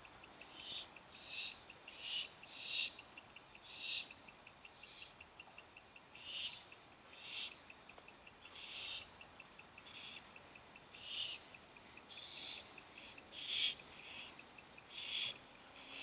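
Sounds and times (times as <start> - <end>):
owl nestlings hissing begging calls: 0.4 - 3.0, 3.6 - 5.2, 6.2 - 7.6, 8.4 - 9.2, 9.8 - 16.0.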